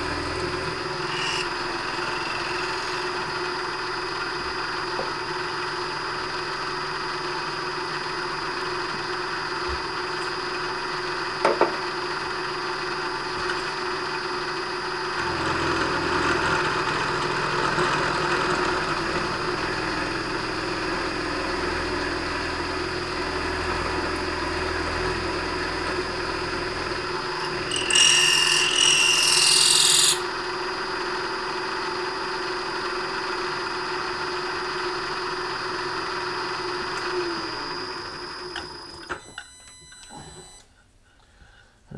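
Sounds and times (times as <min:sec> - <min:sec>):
milling machine cutting metal: 0:00.0 - 0:03.7, 0:15.2 - 0:30.3.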